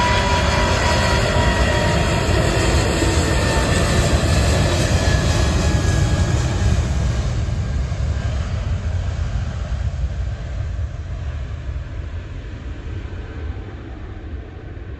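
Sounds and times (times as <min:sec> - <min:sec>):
jet engine deep roar: 0:00.0 - 0:14.9.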